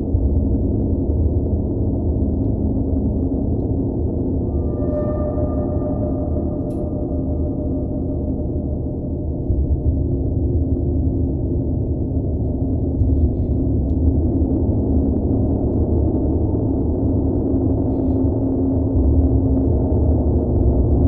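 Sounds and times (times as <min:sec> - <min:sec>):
gongs resonating: 0:04.4 - 0:10.5.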